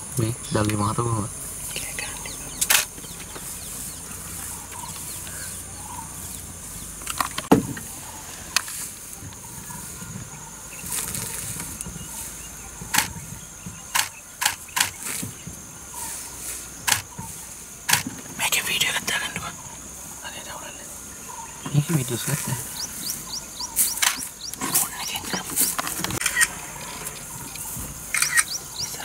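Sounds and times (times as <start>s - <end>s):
insects droning: 0.0s - 29.0s
leaves rustling: 0.0s - 29.0s
twigs snapping: 23.8s - 24.9s.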